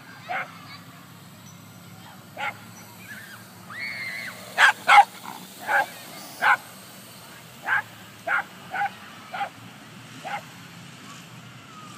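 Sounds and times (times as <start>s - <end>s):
small dog barking: 4.6s - 6.6s, 7.6s - 9.6s, 10.2s - 10.4s.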